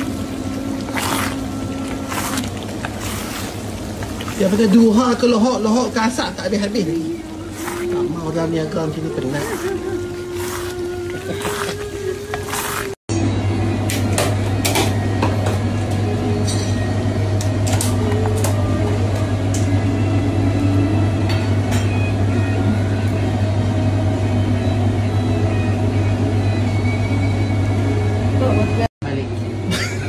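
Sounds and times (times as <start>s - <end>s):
steady low hum: 0.0s - 30.0s
utensils scraping a pan: 0.8s - 4.9s, 7.4s - 8.2s, 9.0s - 13.0s.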